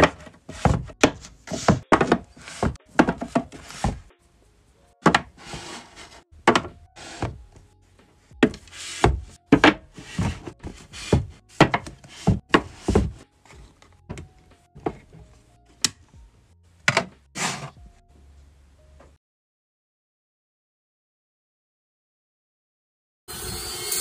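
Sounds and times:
books knocking on a shelf: 0.0 - 4.1, 6.4 - 7.4, 8.4 - 13.2
objects sliding on a shelf: 0.0 - 4.1, 5.0 - 7.4, 8.4 - 13.8, 17.3 - 17.8
music: 0.0 - 19.2, 23.3 - 24.0.

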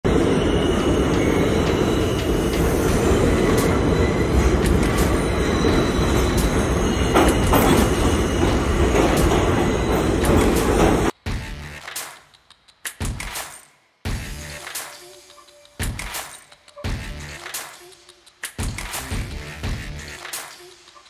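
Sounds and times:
track clacks: 0.1 - 11.2
train wheels rumbling on rails: 0.1 - 11.2.

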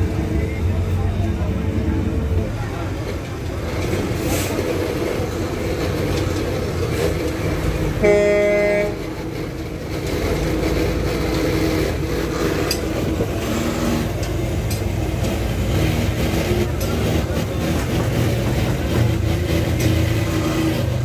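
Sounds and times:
low street rumble: 0.0 - 21.0
vehicle horn honking: 8.0 - 9.1.

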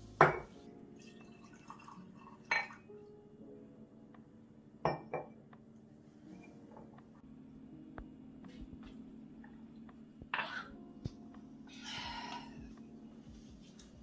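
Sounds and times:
glass knocking on stone countertop: 0.2 - 0.5, 4.8 - 5.3
liquid pouring into a glass: 1.0 - 2.9.

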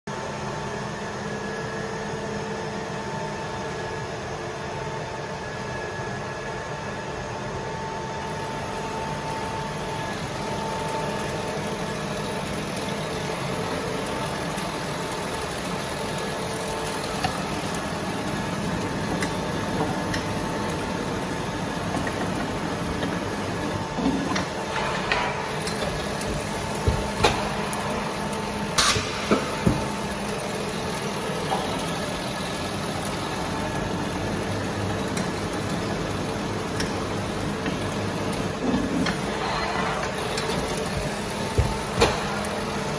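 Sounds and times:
machine hum with faint whine: 0.1 - 42.9.

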